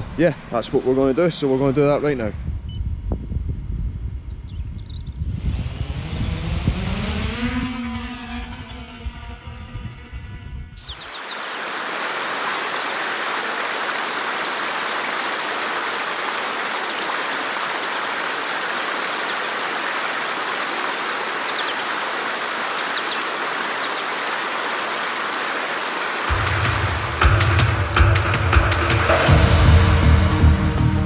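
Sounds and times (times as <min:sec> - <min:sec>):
flowing stream water: 0:10.9 - 0:27.3.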